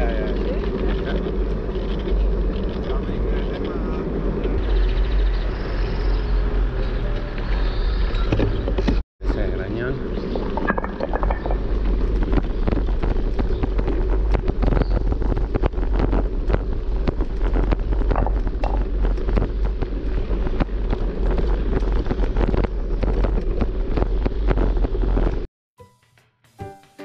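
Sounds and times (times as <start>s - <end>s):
bicycle rattling over cobblestones: 0.0s - 25.5s
wind noise on microphone: 10.0s - 25.5s.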